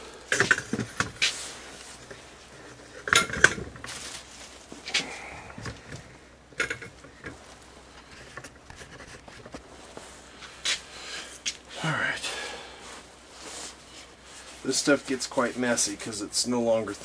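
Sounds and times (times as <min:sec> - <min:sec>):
tools knocking and rustling: 0:00.3 - 0:01.4, 0:02.1 - 0:04.0, 0:05.6 - 0:07.4.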